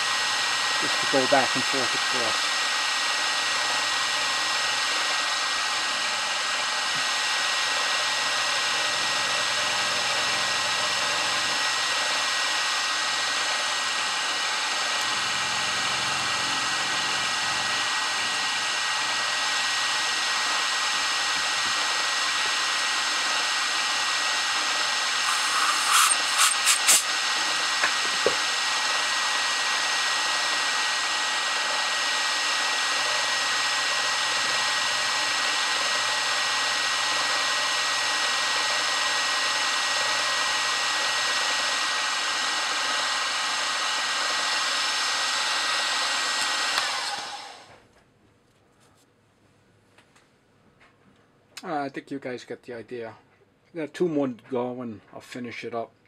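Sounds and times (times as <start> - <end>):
end mill cutting metal: 0.0 - 47.7
milling machine whine: 0.0 - 47.7.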